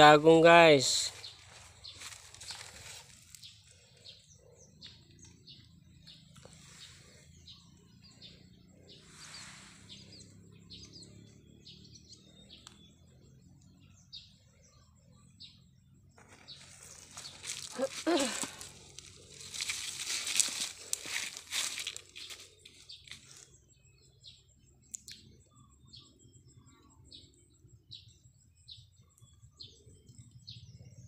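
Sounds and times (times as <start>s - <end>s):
faint bird chirps: 0.0s - 31.0s
rustling: 1.1s - 3.8s, 16.2s - 23.5s.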